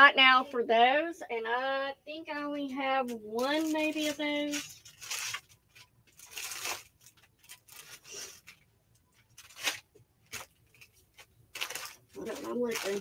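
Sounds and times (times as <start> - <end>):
plastic packaging crinkling: 3.1 - 13.0.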